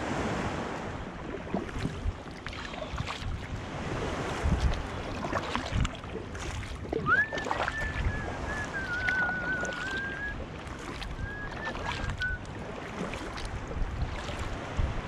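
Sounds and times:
paddle splashing in water: 0.0s - 15.0s
thin wavering whistle: 7.0s - 10.4s, 11.1s - 12.5s.

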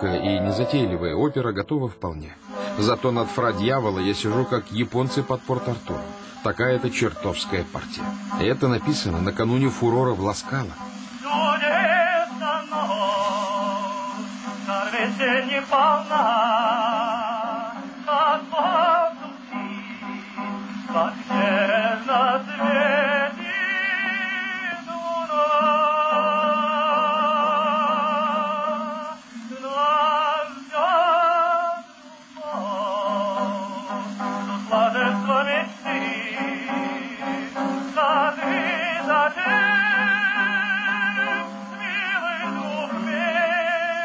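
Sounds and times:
low accompaniment: 0.0s - 3.0s
operatic solo singing: 0.0s - 4.4s, 20.8s - 44.0s.

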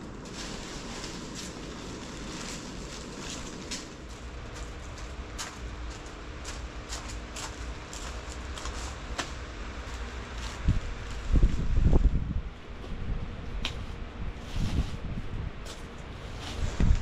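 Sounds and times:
steady low hum: 0.0s - 17.0s
wind rumble on microphone: 0.0s - 17.0s.

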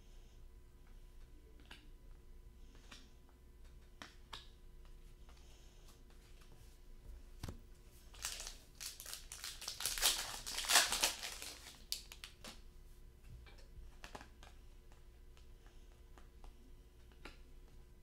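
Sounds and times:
foil wrapper crinkling: 8.1s - 12.6s.

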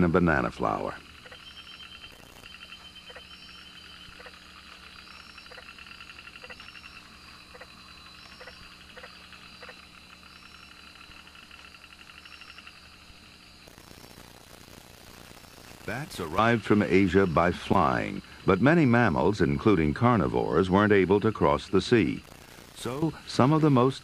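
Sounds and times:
frogs and insects trilling: 0.0s - 24.0s.

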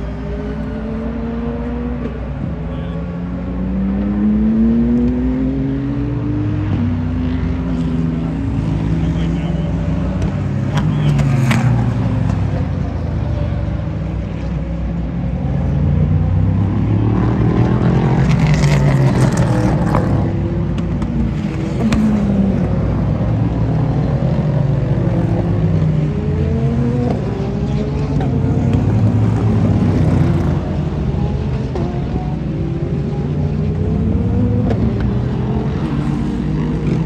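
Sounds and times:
race cars passing at speed: 0.0s - 37.0s.

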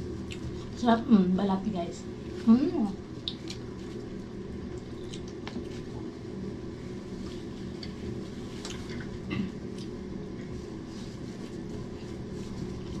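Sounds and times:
low background hum: 0.0s - 13.0s
people eating with hands: 0.0s - 13.0s.

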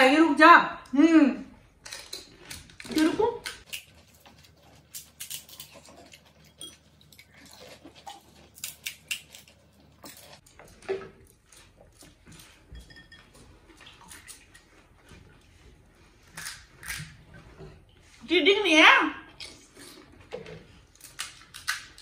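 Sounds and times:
chewing and mouth sounds: 2.3s - 15.4s.

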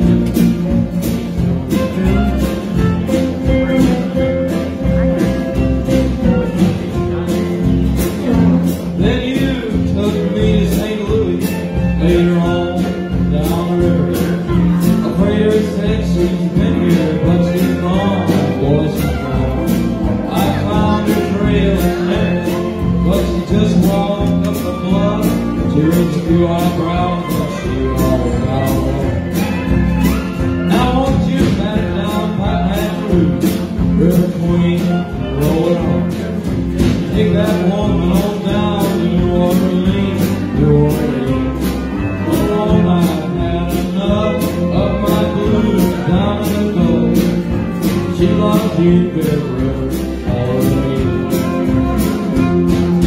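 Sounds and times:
live country band playing: 0.0s - 53.0s.

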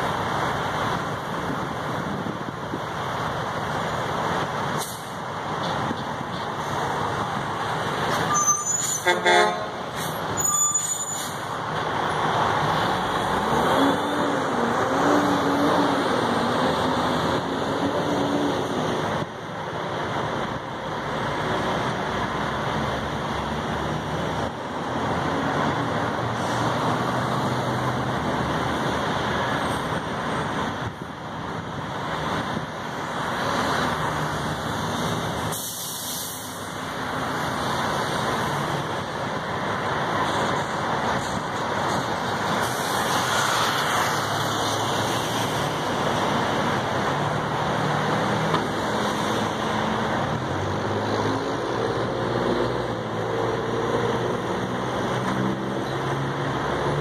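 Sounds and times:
heavy traffic passing: 0.0s - 57.0s
truck brakes squealing: 8.1s - 9.3s, 10.0s - 11.5s.

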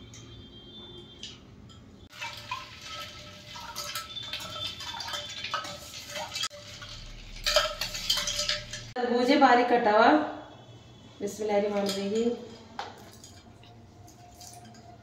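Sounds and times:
liquid sloshing: 2.1s - 8.9s, 12.9s - 15.0s.

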